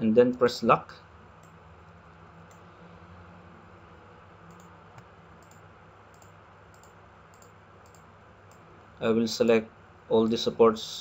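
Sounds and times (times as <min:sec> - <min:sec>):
steady low hum: 0:00.0 - 0:11.0
computer mouse clicking: 0:04.5 - 0:08.6.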